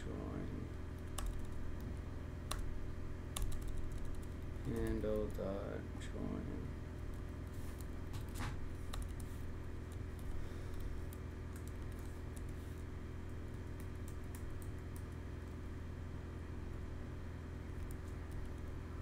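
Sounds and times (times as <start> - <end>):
steady low hum: 0.0 - 19.0
computer keyboard typing: 0.9 - 1.6, 3.3 - 5.5, 7.8 - 12.6, 13.5 - 15.2, 17.7 - 18.8.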